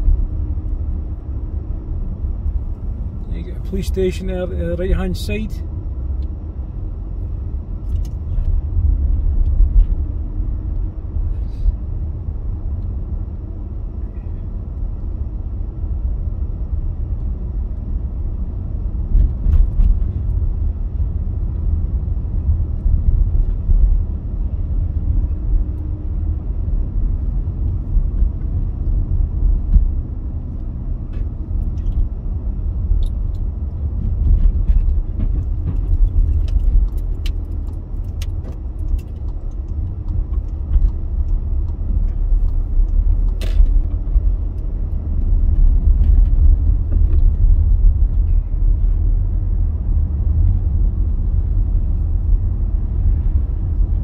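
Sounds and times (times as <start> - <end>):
car engine and tyre rumble: 0.0 - 54.0
small clicks and rattles: 34.1 - 47.5.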